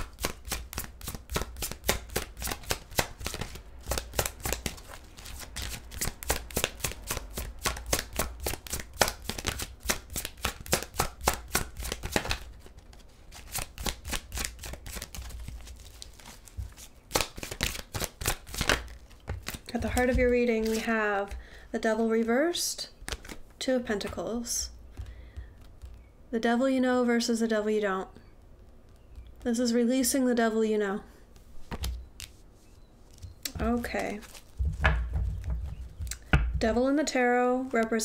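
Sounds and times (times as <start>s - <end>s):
cards being shuffled: 0.0s - 21.4s, 23.0s - 26.1s, 31.3s - 32.4s, 33.1s - 36.3s.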